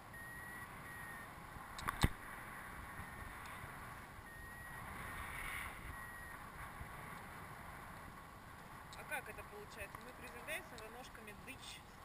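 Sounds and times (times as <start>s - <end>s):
wind rushing over microphone: 0.2s - 10.6s
sharp clicks: 1.7s - 2.2s.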